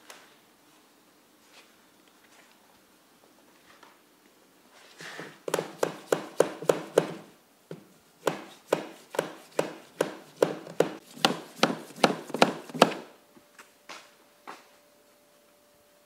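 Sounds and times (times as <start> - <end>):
hammer tapping on wooden wall: 5.5 - 13.0.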